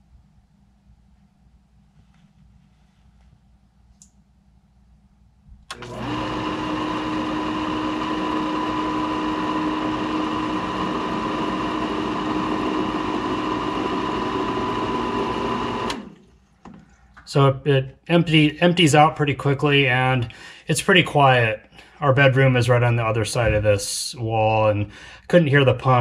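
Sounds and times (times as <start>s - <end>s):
pump switching on click: 5.6s - 6.2s, 15.8s - 16.2s
condensate pump humming and whining: 5.7s - 16.9s.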